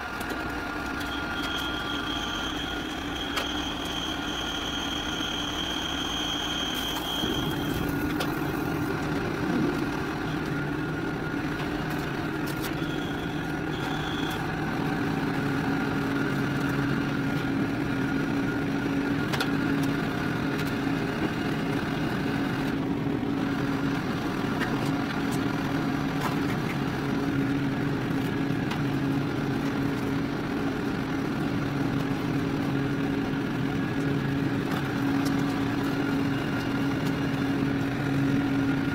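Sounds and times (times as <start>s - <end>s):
machine hum with tones: 0.0s - 38.9s.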